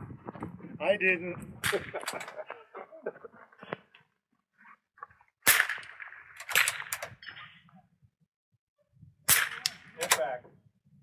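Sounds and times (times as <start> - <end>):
rifle shots: 5.4 - 7.2, 9.3 - 10.3.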